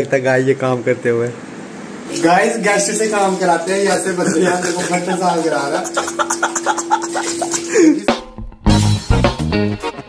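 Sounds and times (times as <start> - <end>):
bass guitar and drums: 8.1 - 10.0.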